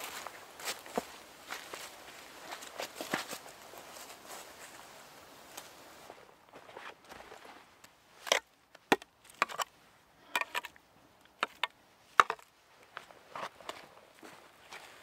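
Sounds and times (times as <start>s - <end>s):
shovel knocking and scraping stones: 8.2s - 9.7s, 10.3s - 12.5s.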